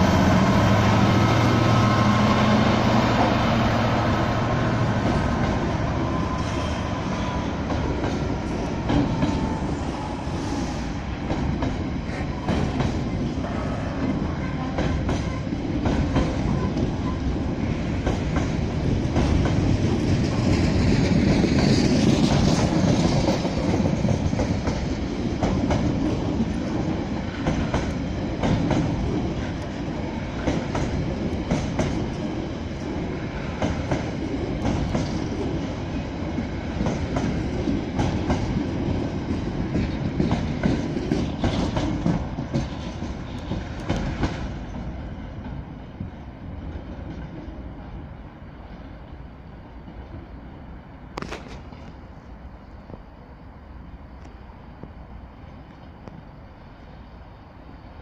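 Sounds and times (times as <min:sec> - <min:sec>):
heavy train rumble: 0:00.0 - 0:58.0
train wheels clattering over rail joints: 0:04.5 - 0:09.7, 0:11.2 - 0:47.5.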